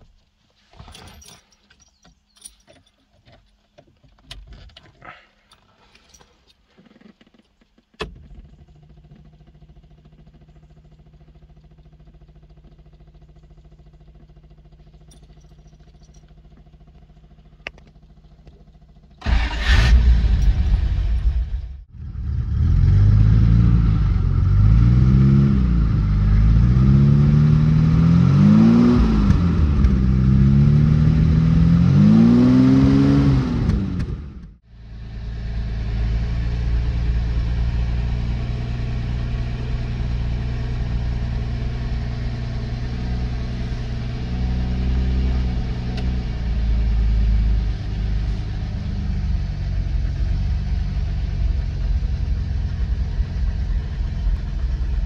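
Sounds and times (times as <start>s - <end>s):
car engine idling: 7.8s - 22.7s, 33.6s - 55.0s
car engine revving: 19.2s - 55.0s.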